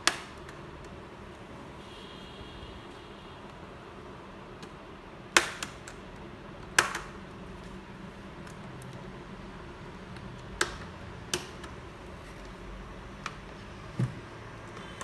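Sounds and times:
sharp plastic clicks: 0.0 - 1.0, 4.6 - 7.8, 10.1 - 11.8.

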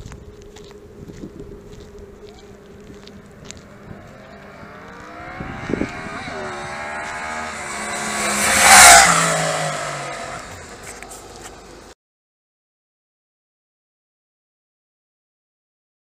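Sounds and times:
motorcycle accelerating past: 2.1 - 11.2.

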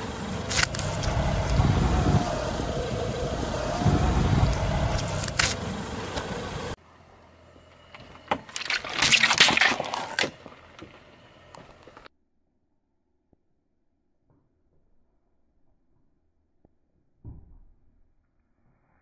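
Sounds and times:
tyre rolling on asphalt: 0.0 - 6.8
scattered clicks: 0.4 - 2.9, 3.7 - 6.4.

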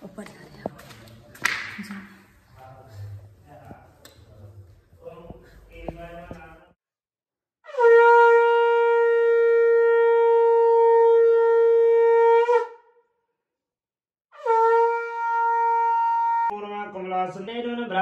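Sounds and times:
conch shell blasts: 7.7 - 13.0, 14.4 - 16.5.

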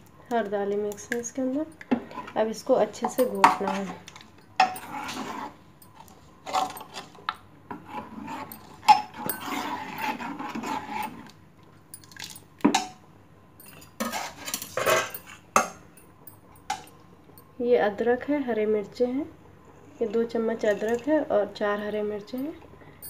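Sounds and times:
metal spoon scraping a pot: 3.0 - 4.0, 4.6 - 11.3, 13.7 - 15.4.

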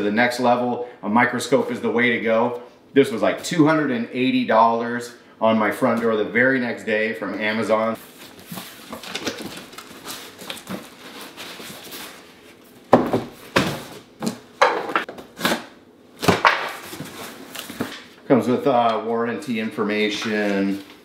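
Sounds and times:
cardboard rustling and scraping: 8.0 - 14.0, 16.7 - 18.0
cardboard boxes knocking on table: 12.9 - 15.1.

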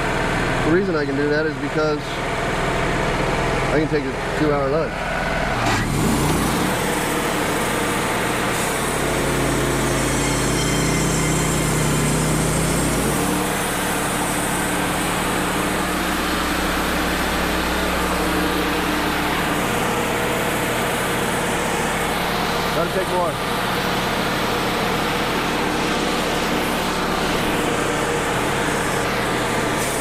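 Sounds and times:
sawmill engine under load: 0.0 - 30.0
band blade cutting log: 8.6 - 13.6.

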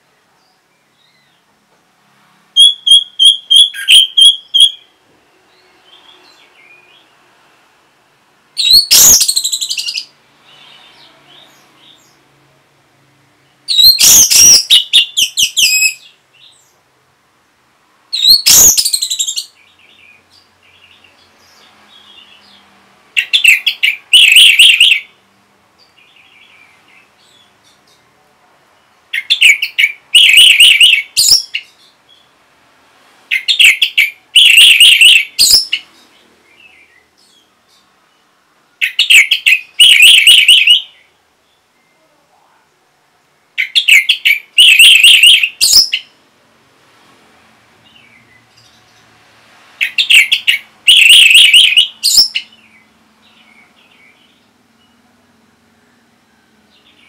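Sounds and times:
soft bird twittering: 18.2 - 25.1.

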